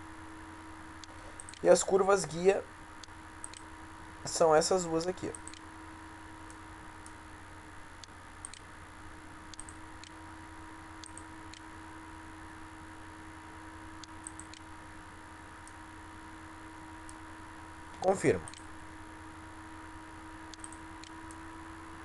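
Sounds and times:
electrical hum and hiss: 0.0 - 22.0
faint computer mouse clicks: 20.5 - 21.4.

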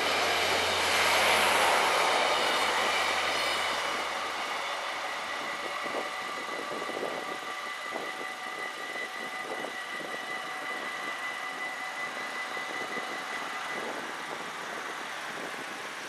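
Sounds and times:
wind: 0.0 - 16.0.

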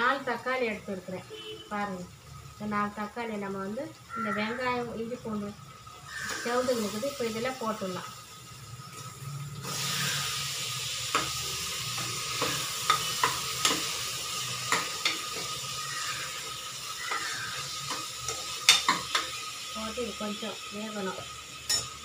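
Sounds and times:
food sizzling in oil: 0.0 - 22.0
spoon clinking against pan: 21.7 - 22.0.

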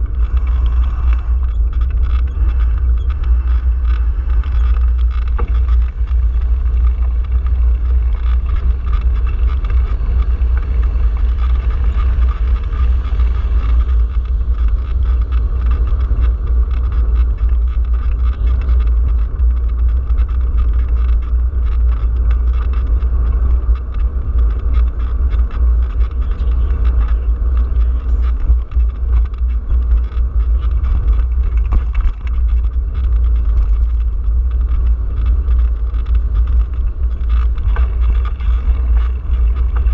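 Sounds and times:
bicycle road vibration: 0.0 - 39.9
wind buffeting microphone: 0.0 - 39.9.

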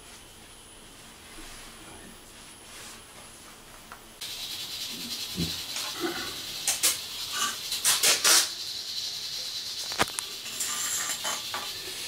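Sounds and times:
steady hiss: 4.2 - 12.0.

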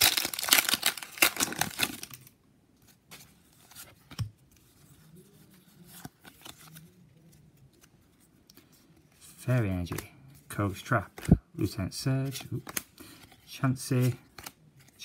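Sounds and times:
foil wrapper tearing and crinkling: 0.0 - 2.2
cards clicking and rustling: 5.9 - 8.7, 12.0 - 15.0.

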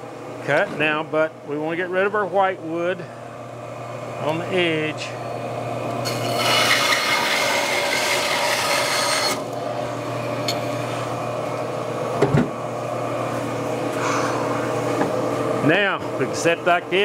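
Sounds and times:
motor humming: 2.8 - 17.0
bandsaw cutting wood: 6.0 - 9.6.

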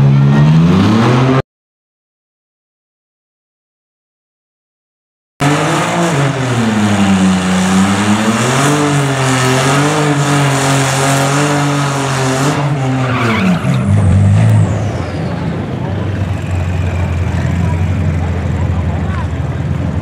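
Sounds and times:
car engine at high revs: 0.0 - 1.4, 5.4 - 20.0.

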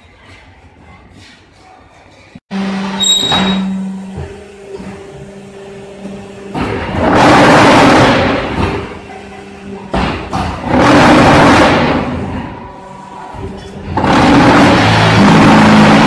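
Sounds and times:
loud vibrating buzz: 2.5 - 9.0, 13.8 - 16.0
hydraulic unit humming: 2.5 - 16.0.

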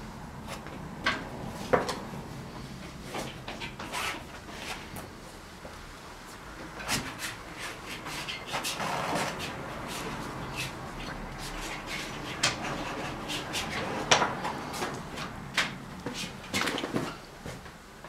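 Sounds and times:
painting tools scraping: 1.5 - 5.3, 6.7 - 17.6
painting tools clicking and knocking: 8.4 - 17.2.

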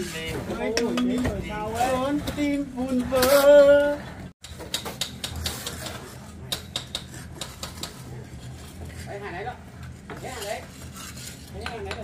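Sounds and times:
trowels tapping and scraping bricks: 4.4 - 8.1, 10.1 - 12.0.

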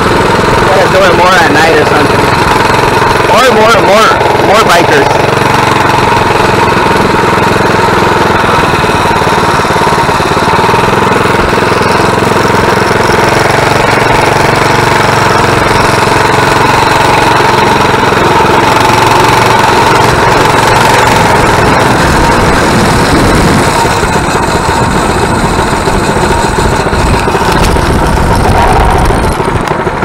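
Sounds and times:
mini bike engine running: 0.0 - 30.0.

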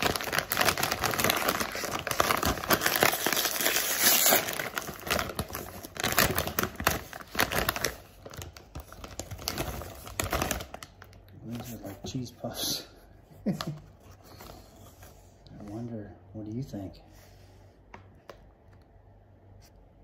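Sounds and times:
plastic snack bag crinkling: 0.0 - 12.2.

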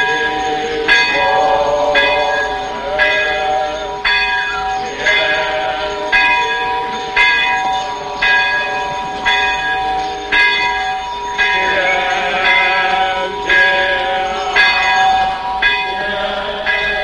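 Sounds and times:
bell tolling: 0.0 - 17.0.

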